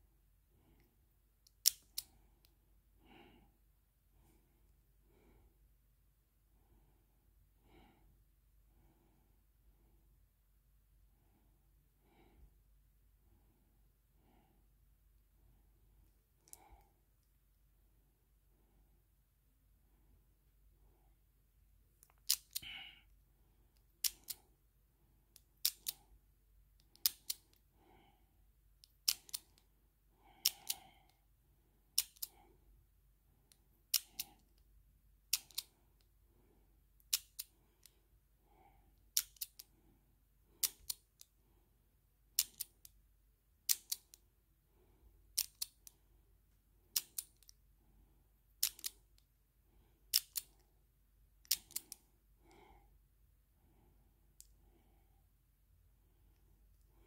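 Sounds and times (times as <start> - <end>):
padlock shackle clicking: 1.4 - 2.1, 22.0 - 22.6, 23.9 - 24.4, 25.3 - 26.0, 26.8 - 27.6, 28.8 - 29.7, 30.4 - 30.8, 32.0 - 32.4, 33.9 - 34.6, 35.2 - 35.7, 37.0 - 37.9, 39.1 - 39.7, 40.6 - 41.3, 42.3 - 43.0, 43.6 - 44.2, 45.3 - 45.9, 46.9 - 47.6, 48.6 - 49.2, 50.1 - 50.6, 51.4 - 52.0.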